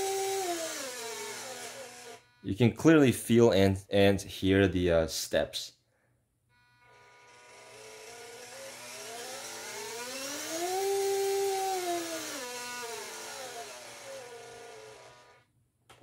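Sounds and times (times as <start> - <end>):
electric motor whine: 0.0 - 2.3, 6.6 - 15.4.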